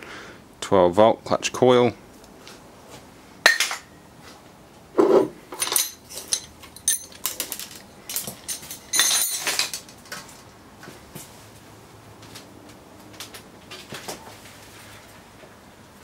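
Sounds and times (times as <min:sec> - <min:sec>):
metal tools clinking on workbench: 0:05.1 - 0:10.5.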